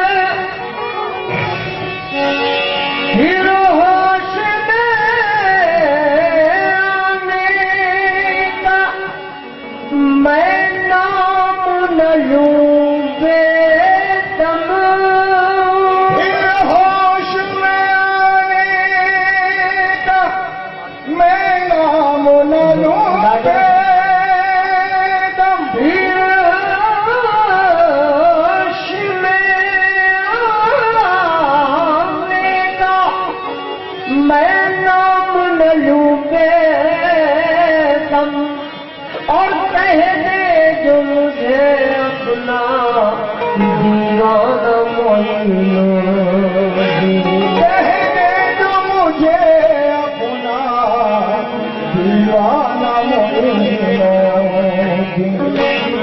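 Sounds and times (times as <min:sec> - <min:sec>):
man singing: 0:00.0 - 0:01.4, 0:03.0 - 0:56.0
harmonium playing: 0:00.0 - 0:56.0.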